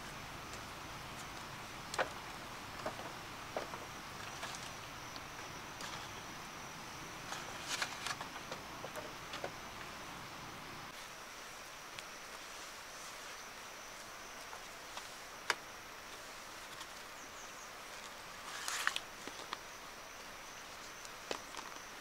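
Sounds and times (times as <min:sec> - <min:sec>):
high insect drone: 0:00.0 - 0:22.0
sharp clicks and light knocks: 0:01.3 - 0:02.2, 0:07.3 - 0:09.9.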